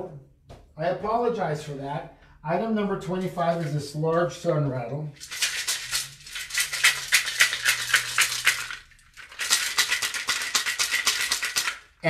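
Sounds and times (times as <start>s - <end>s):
rattle shaken: 5.2s - 12.0s.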